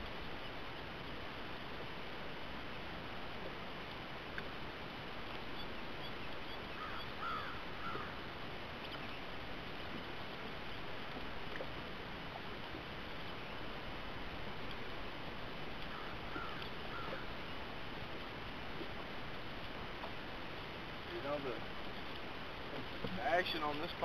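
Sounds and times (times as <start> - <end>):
outdoor background hiss: 0.0 - 24.0
faint short bird calls: 6.5 - 8.2, 15.9 - 17.4.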